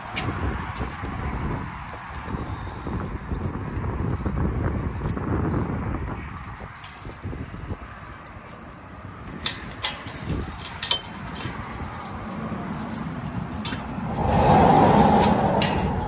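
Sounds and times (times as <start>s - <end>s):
keys jangling in lock: 0.2s - 14.1s
metal gate scraping open: 9.3s - 16.0s.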